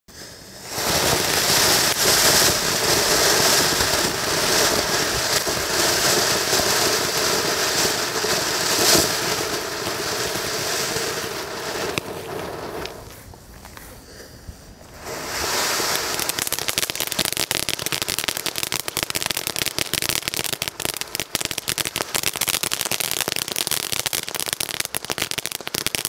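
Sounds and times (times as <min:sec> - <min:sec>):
firework crackles: 0:00.1 - 0:26.0
firework fountain hissing: 0:00.1 - 0:26.0.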